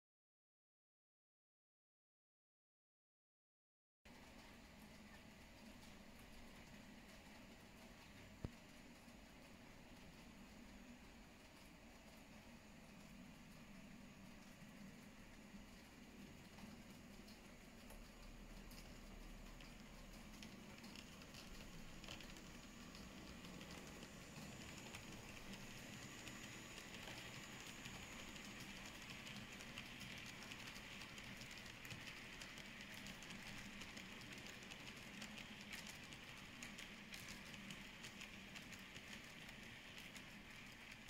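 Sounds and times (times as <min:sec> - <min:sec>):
wheels clicking on rail: 0:14.7 - 0:41.0
model train whirring: 0:19.4 - 0:41.0.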